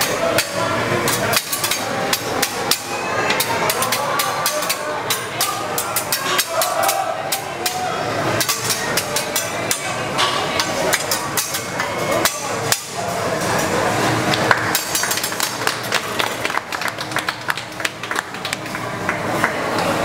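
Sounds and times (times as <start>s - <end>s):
metal spatulas clacking on griddle: 0.0s - 7.8s, 8.4s - 12.9s.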